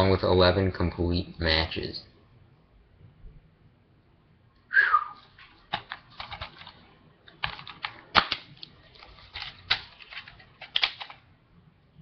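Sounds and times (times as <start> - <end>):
plastic case clicking: 5.7 - 8.7, 9.4 - 11.2.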